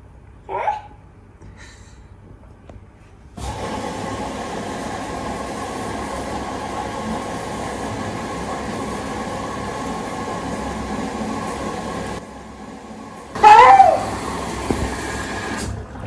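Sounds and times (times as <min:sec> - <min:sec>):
washing machine drum rumble: 0:03.4 - 0:16.0.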